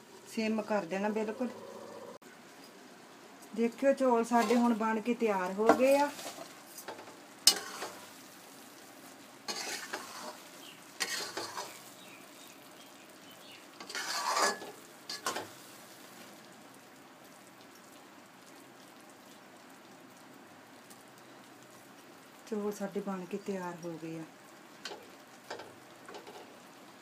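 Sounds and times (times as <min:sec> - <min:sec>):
metal spatula scraping rice in pot: 0:07.5 - 0:08.0, 0:09.5 - 0:11.8, 0:13.8 - 0:15.5.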